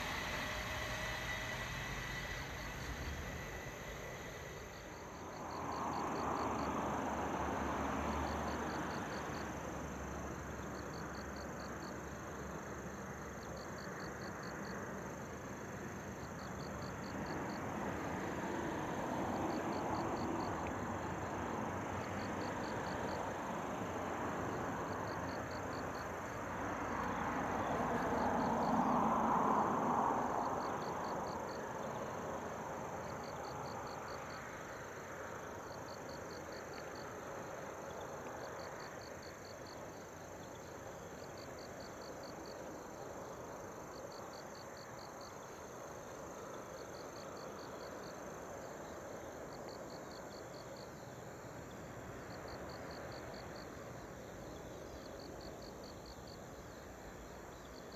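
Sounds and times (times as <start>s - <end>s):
steady rushing background: 0.0s - 5.8s
broad rushing sound: 0.0s - 7.1s
insects chirping in trills: 0.0s - 57.9s.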